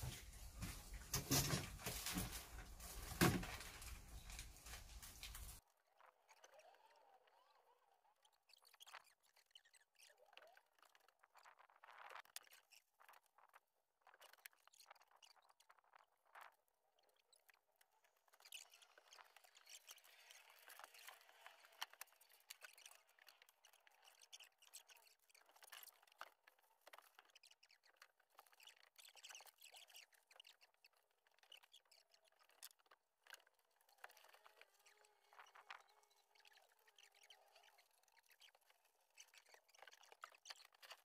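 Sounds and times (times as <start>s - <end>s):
rapid clatter of tiny clicks: 8.3s - 41.0s.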